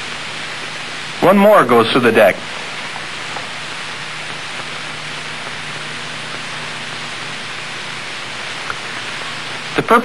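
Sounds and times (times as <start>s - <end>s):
film soundtrack hiss: 0.0s - 10.0s.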